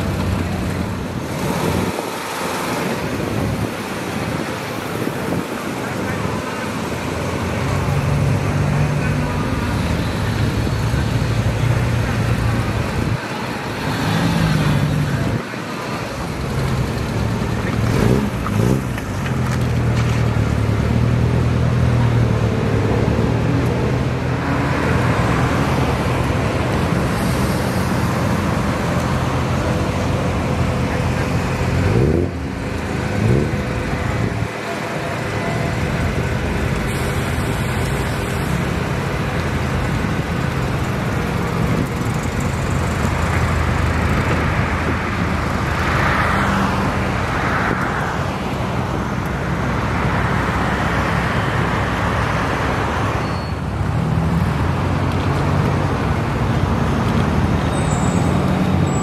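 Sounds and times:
car engines humming: 0.0 - 59.0
engine revving: 17.7 - 19.4, 30.4 - 34.5.

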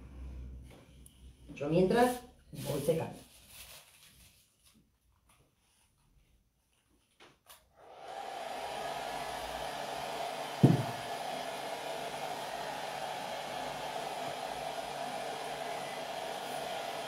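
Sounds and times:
hair dryer blowing: 7.8 - 17.0
short thump: 10.6 - 10.9.

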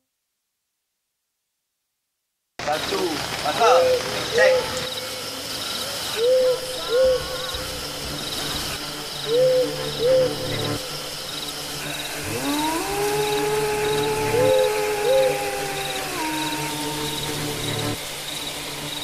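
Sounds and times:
night insects chirping: 2.6 - 19.0
owl hooting: 6.0 - 18.0
low rising tone: 6.4 - 18.0.

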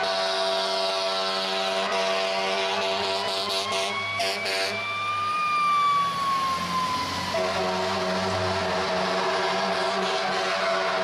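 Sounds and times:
blaring horn: 0.0 - 4.8, 7.2 - 11.0
fire truck siren wailing: 0.0 - 11.0
truck engine rumbling: 0.0 - 11.0.

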